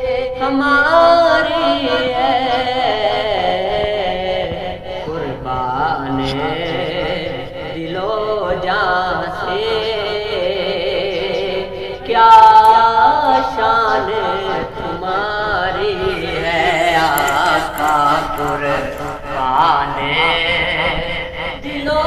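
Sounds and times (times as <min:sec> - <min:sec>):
man singing solo: 0:15.4 - 0:20.6.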